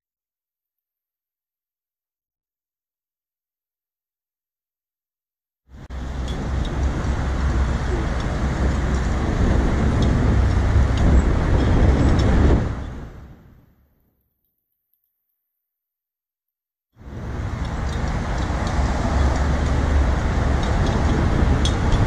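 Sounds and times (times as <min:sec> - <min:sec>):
road traffic rumble: 0:05.7 - 0:13.8, 0:17.0 - 0:22.0.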